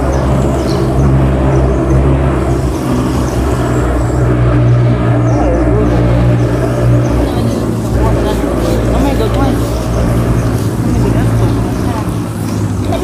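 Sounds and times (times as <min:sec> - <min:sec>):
loud low engine drone: 0:00.0 - 0:13.0.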